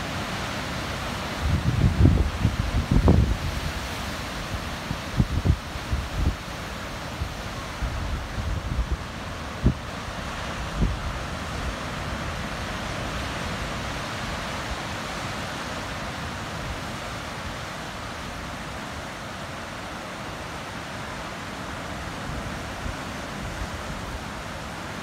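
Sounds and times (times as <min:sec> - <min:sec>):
ocean surf breaking on rocks: 0:00.0 - 0:25.0
wind buffeting microphone: 0:01.4 - 0:03.8.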